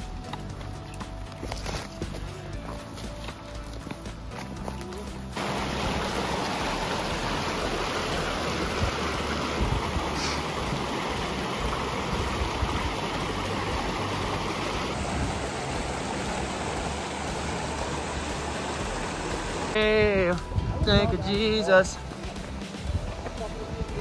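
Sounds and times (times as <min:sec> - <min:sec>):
steady rushing noise: 0:05.4 - 0:24.0.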